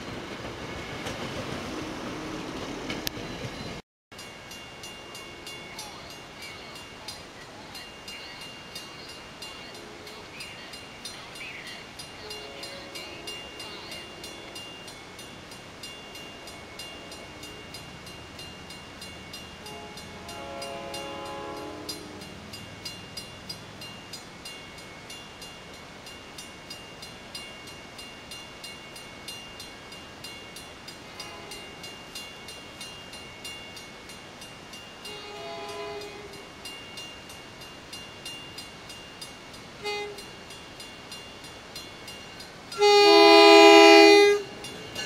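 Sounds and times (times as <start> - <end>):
crossing bell ringing: 2.3 - 45.0
distant train air horn: 12.2 - 14.6, 19.6 - 22.4, 31.1 - 31.7, 35.1 - 36.4, 39.8 - 40.3, 42.7 - 44.6.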